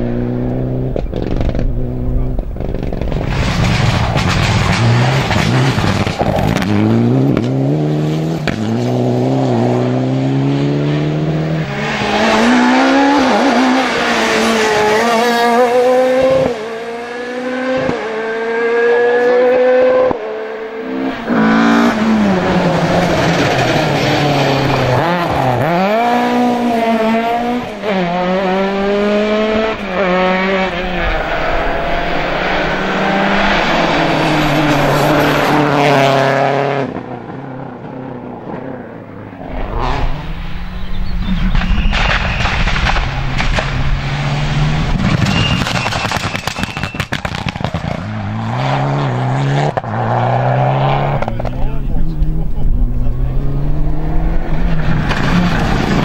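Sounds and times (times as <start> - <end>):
rally car engines revving: 0.0 - 56.0.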